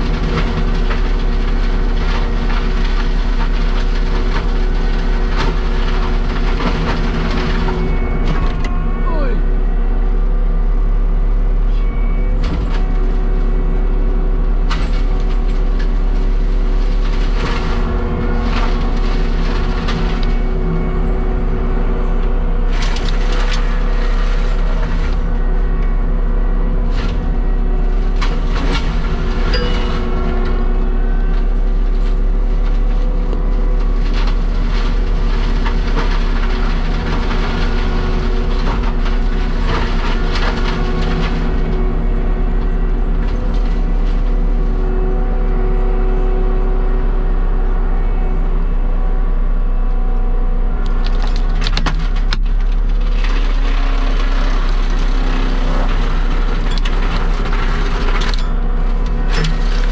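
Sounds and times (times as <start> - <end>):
wood cracking and snapping: 0.0 - 8.8, 14.6 - 25.9, 26.9 - 44.7, 50.8 - 59.9
heavy diesel machine running: 0.0 - 59.9.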